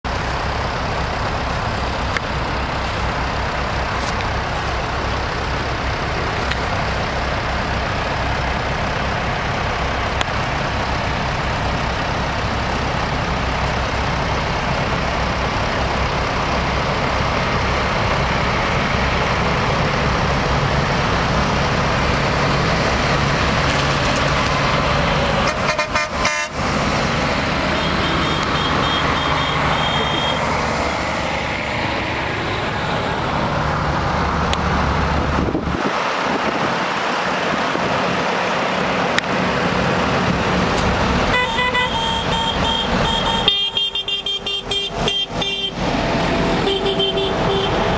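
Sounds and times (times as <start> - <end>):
vehicle engines droning: 0.0 - 47.9
horns tooting: 25.3 - 26.6, 27.6 - 30.8, 41.3 - 47.9.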